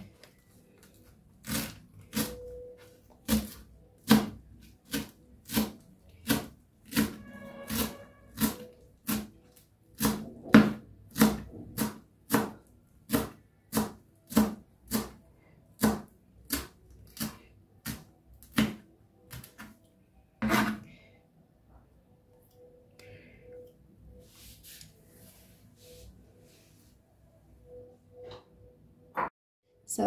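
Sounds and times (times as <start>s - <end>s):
knife chopping on cutting board: 3.2s - 9.3s, 10.0s - 15.2s, 15.8s - 19.7s.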